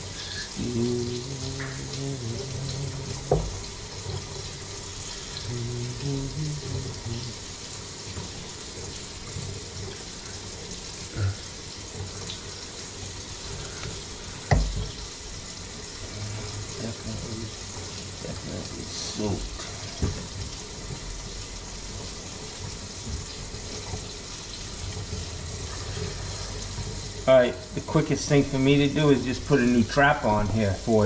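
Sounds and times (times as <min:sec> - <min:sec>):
water running into a sink: 0:00.0 - 0:31.0
knocks on pipes: 0:03.3 - 0:03.6, 0:14.5 - 0:14.9.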